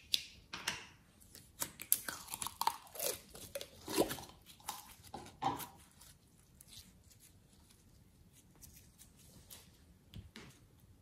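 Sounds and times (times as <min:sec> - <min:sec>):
slime squelching: 0:01.2 - 0:09.7
sticky slime crackles: 0:01.3 - 0:09.7.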